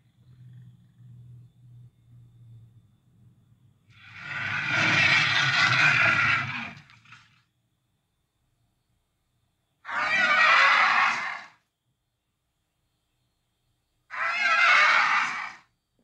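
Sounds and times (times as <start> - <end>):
cartoon dinosaur roar: 4.0 - 7.3, 9.9 - 11.6, 14.1 - 15.6.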